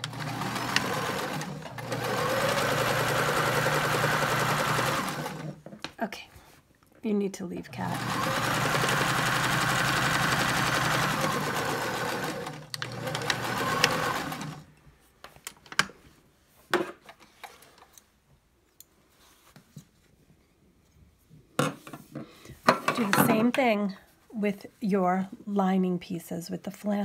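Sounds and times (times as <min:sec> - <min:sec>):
sewing machine stitching: 0:00.0 - 0:05.6, 0:07.7 - 0:14.7.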